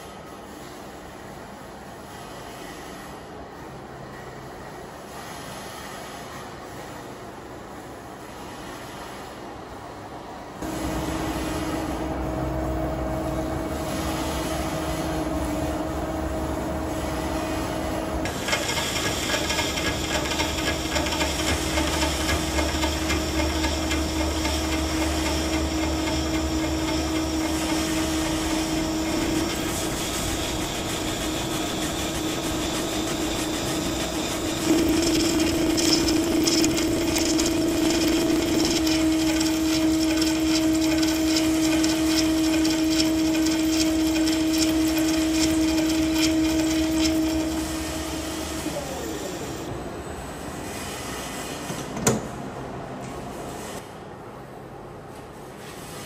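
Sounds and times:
lathe machine whine: 10.6s - 50.2s
tool cutting metal with hiss and scrape: 16.9s - 49.6s.

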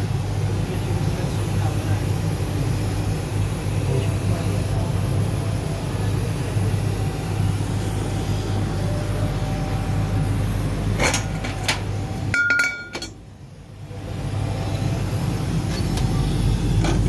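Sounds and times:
laser cutter humming: 0.0s - 17.0s.

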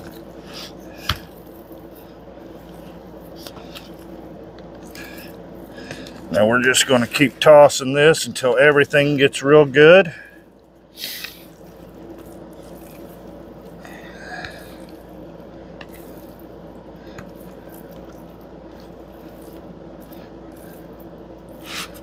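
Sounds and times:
steady low hum: 0.0s - 22.0s
raw chicken squishing: 10.6s - 22.0s.

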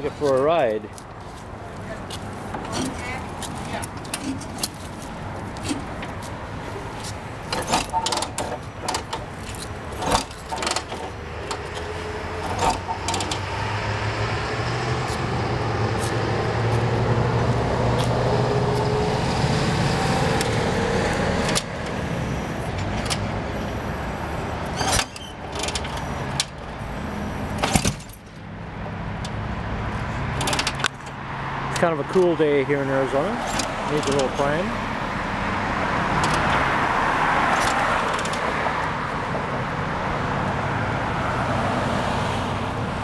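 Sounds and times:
metallic clicks and clunks: 2.1s - 6.3s, 7.0s - 13.6s, 21.4s - 22.0s, 22.7s - 23.4s, 24.6s - 26.8s, 27.4s - 28.5s, 30.2s - 32.3s, 33.4s - 34.5s, 36.2s - 36.7s, 37.4s - 38.9s
engine-like drone: 2.4s - 41.8s.

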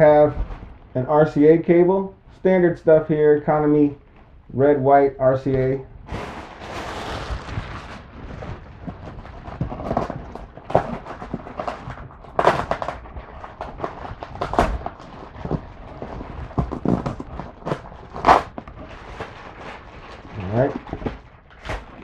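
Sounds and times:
plastic and paper crinkling: 5.5s - 22.0s.

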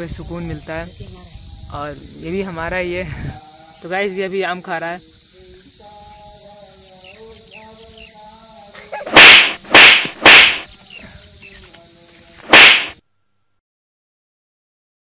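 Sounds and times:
high-pitched insect buzzing: 0.0s - 13.0s
short rushing noises: 9.1s - 10.7s, 12.5s - 13.0s.

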